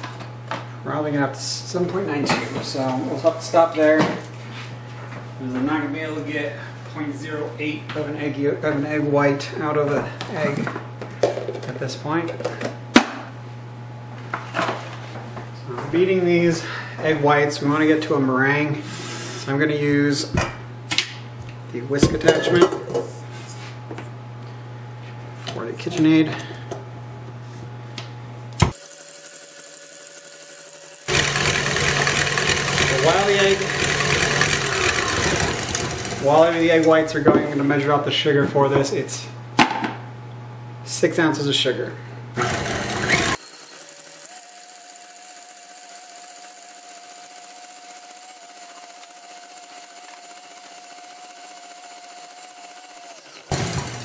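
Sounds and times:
stand mixer whisking: 28.7s - 36.5s, 42.4s - 54.0s.

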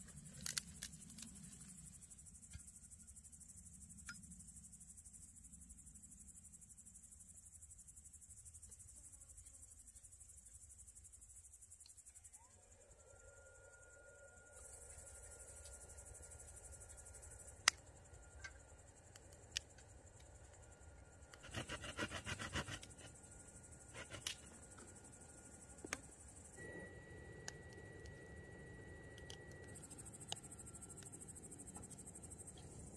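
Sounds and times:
crickets chirping: 0.0s - 32.9s
faint steady whine: 0.0s - 32.9s.

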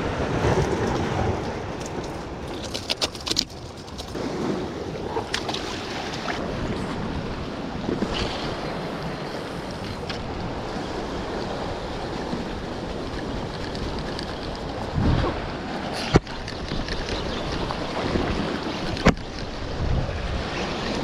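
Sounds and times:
wind buffeting microphone: 6.3s - 21.0s.

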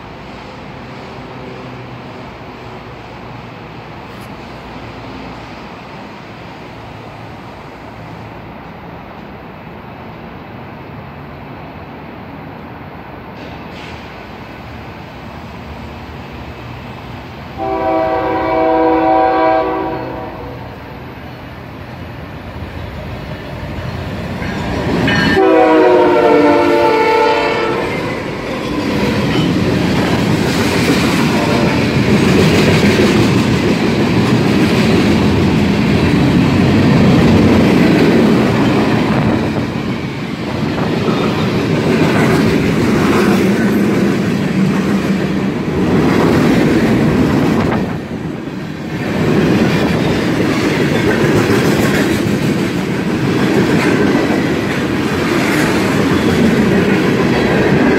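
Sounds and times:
freight train rumbling past: 0.0s - 57.9s
train horn blast: 17.6s - 20.8s, 25.1s - 28.1s.

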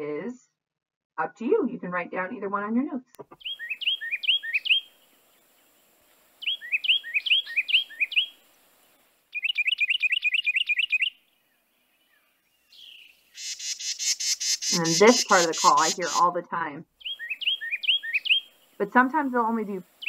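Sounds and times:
wren singing: 3.4s - 5.1s, 6.4s - 8.4s, 9.3s - 11.4s, 12.0s - 16.4s, 17.0s - 20.0s.

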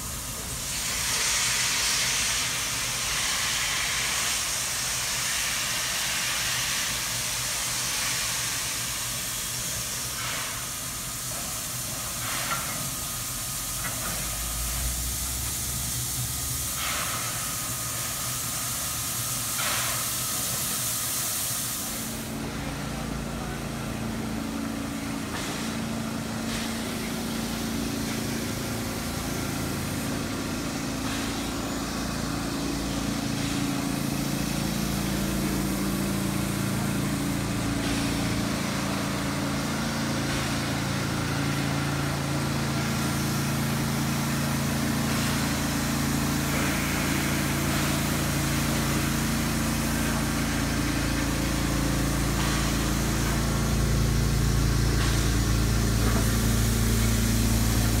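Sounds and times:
steam locomotives hissing: 0.0s - 58.0s
low engine-like hum: 22.2s - 58.0s.

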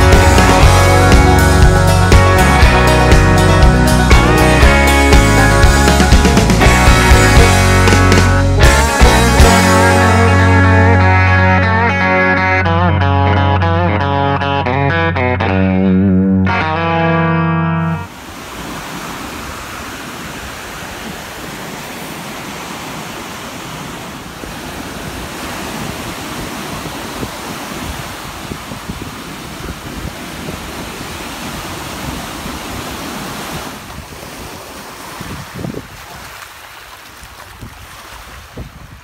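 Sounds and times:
waves breaking in surf: 0.0s - 11.3s, 17.8s - 39.0s
wind buffeting microphone: 18.1s - 36.4s, 37.1s - 39.0s
small waves lapping at shore: 18.1s - 39.0s.

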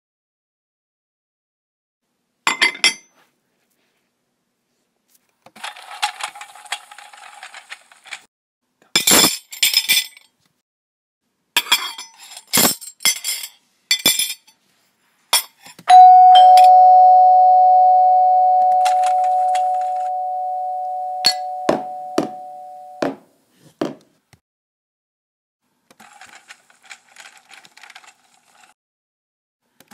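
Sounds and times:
two-note doorbell chime: 15.9s - 23.0s.

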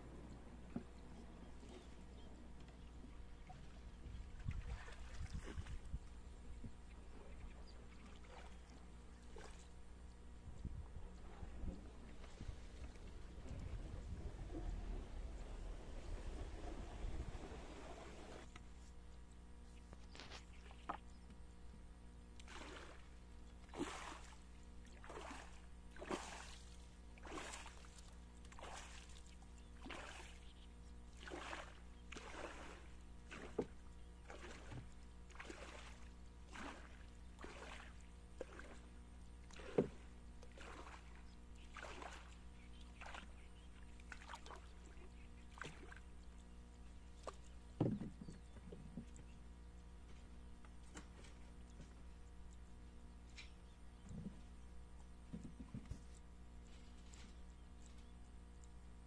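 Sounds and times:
rhythmic water splashing: 31.1s - 47.5s.

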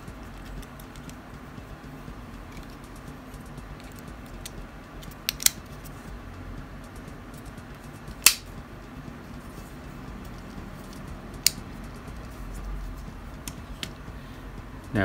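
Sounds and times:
sharp plastic clicks: 2.5s - 5.9s, 6.8s - 8.6s.

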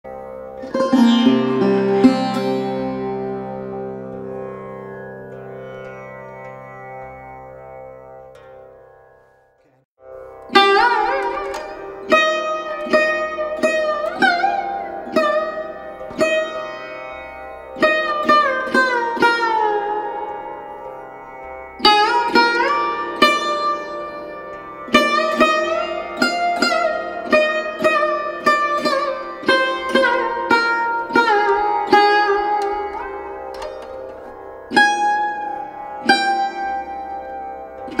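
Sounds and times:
plucked sitar-like melody: 0.0s - 38.0s.

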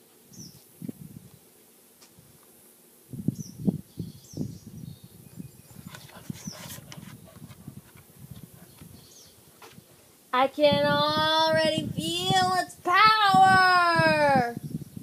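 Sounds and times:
small birds chirping: 0.3s - 0.8s, 3.2s - 11.0s, 13.3s - 15.0s
rustling: 5.7s - 10.3s.

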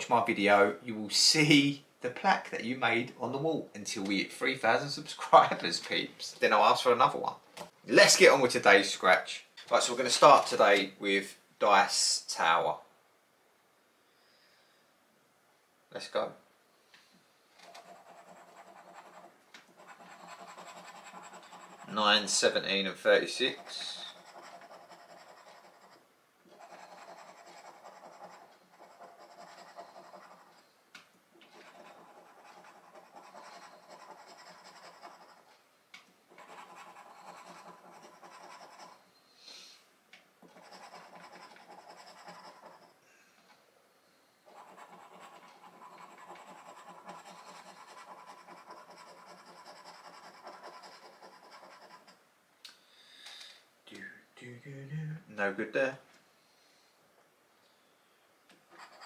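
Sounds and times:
scratchcard being scratched: 17.7s - 22.6s, 23.2s - 30.6s, 31.4s - 35.5s, 36.3s - 39.0s, 40.4s - 43.0s, 44.5s - 52.2s, 58.7s - 59.0s.

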